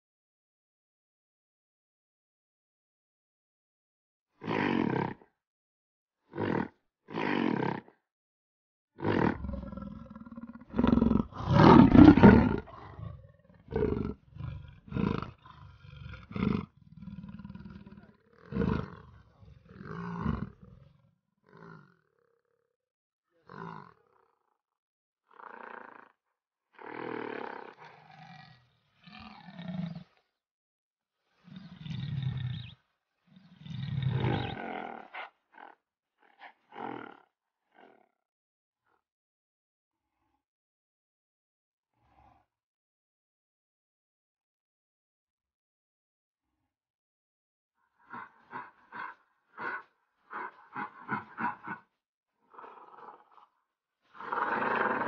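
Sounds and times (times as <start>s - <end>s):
big cat roaring and growling: 6.3s - 7.9s, 9.0s - 22.1s, 23.4s - 24.1s, 25.3s - 26.1s, 26.8s - 30.2s, 31.4s - 38.1s, 48.0s - 51.9s, 52.5s - 53.5s, 54.2s - 55.0s.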